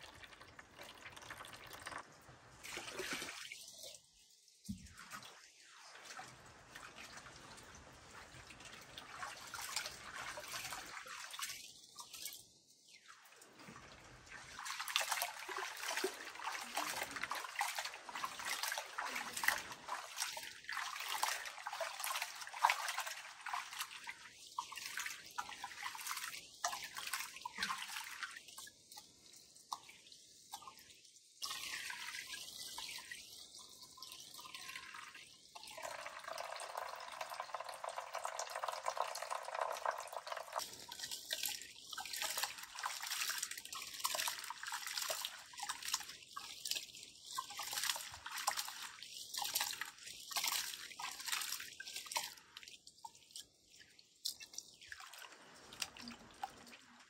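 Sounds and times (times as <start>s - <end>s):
water splashing and trickling: 0.0s - 57.0s
rice swished in water: 13.1s - 28.4s.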